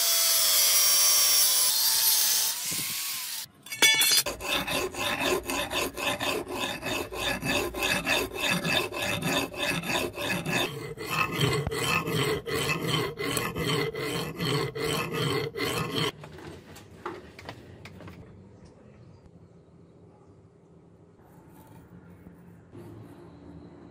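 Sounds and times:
hand file rasping on steel: 0:03.8 - 0:16.1.

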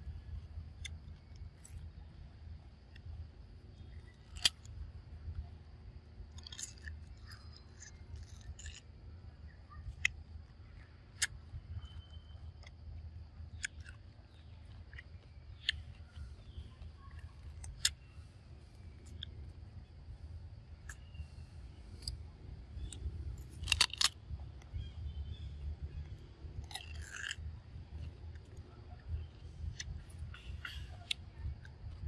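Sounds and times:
monkey crunching mango: 0:06.4 - 0:08.9, 0:22.8 - 0:24.2, 0:26.6 - 0:28.6.

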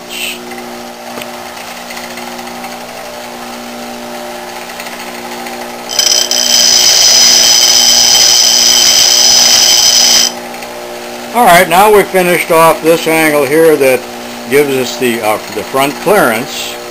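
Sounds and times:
bench grinder humming: 0:01.2 - 0:16.9
high grinding screech: 0:05.9 - 0:10.4.

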